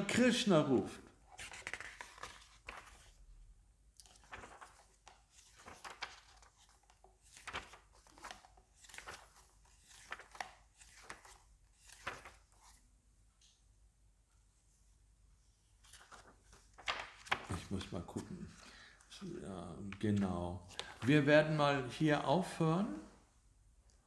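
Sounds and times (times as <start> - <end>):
book pages turning: 1.2 - 3.2, 3.9 - 12.8, 15.8 - 19.2, 19.8 - 21.3.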